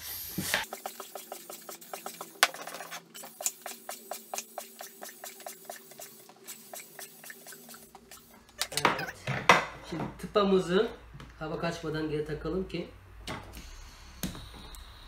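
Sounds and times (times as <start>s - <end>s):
air pump pulsing: 0.0s - 2.5s, 3.2s - 8.6s.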